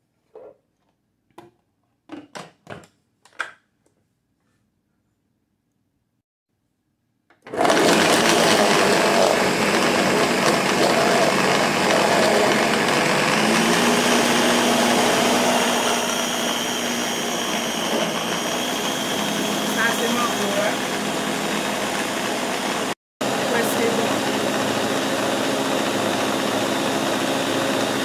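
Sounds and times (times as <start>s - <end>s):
blender running: 7.5s - 28.0s.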